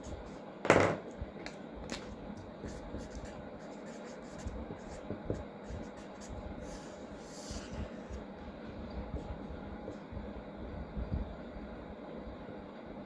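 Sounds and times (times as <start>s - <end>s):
marker writing on paper: 2.6s - 8.2s.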